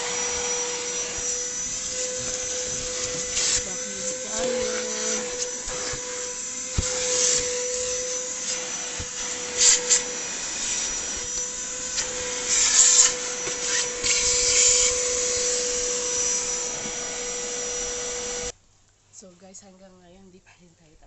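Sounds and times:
nozzle hissing across carpet: 0.0 - 18.5
vacuum cleaner running: 0.0 - 18.6.

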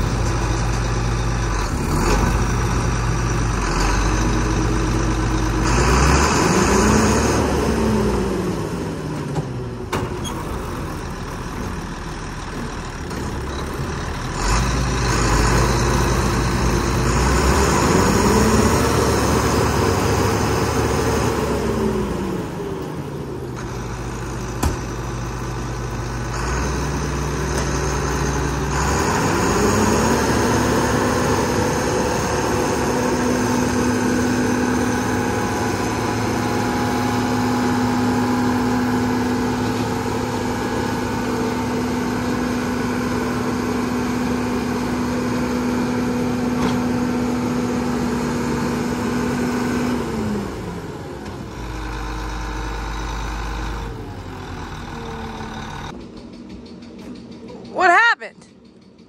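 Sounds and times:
forage harvester whine: 12.4 - 58.2.

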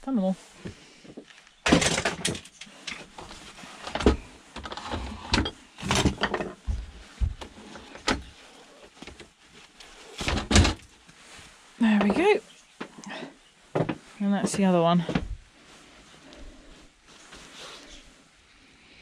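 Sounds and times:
plastic parts clattering on wood: 1.6 - 6.8, 10.2 - 10.8.

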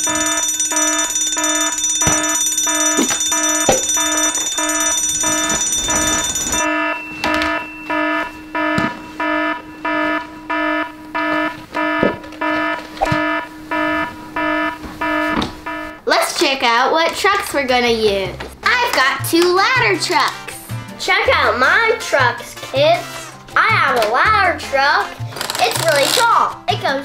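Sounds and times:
high ringing tone: 0.0 - 16.0
fire alarm beeping: 0.0 - 16.2.

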